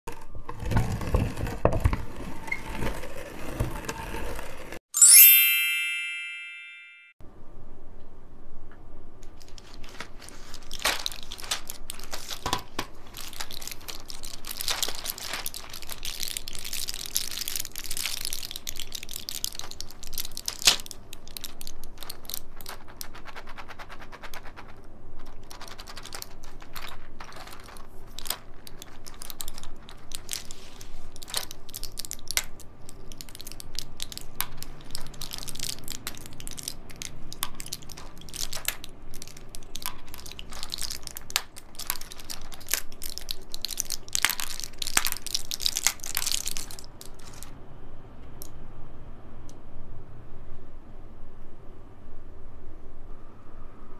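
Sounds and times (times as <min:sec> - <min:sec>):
chime: 0:05.0 - 0:07.2
plastic and foil crackling: 0:09.2 - 0:47.5.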